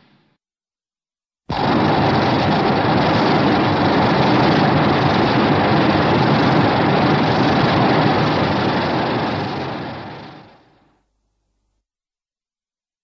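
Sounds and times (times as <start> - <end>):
loud rushing rumble: 1.5 - 10.7.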